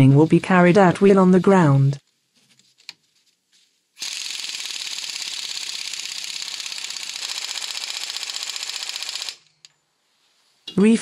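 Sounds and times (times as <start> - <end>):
pneumatic impact wrench hammering: 4.0 - 9.4.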